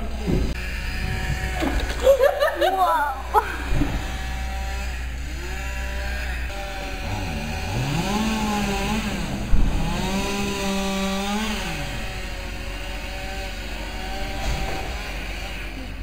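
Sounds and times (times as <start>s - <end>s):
chainsaw revving and cutting: 0.5s - 16.0s
sharp thump: 14.4s - 15.0s.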